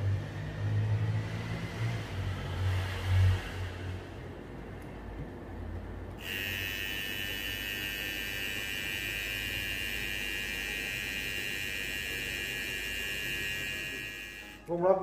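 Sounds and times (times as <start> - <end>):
hair trimmer whining: 6.2 - 14.7.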